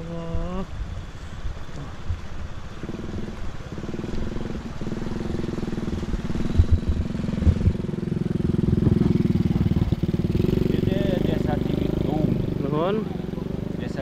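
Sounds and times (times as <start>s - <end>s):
small motorcycle engine running: 2.8s - 14.0s
low thumps: 5.4s - 10.7s.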